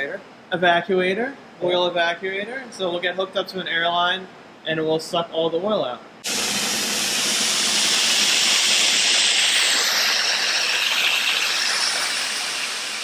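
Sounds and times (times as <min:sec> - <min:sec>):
air-powered oil pump hissing: 0:06.2 - 0:13.0.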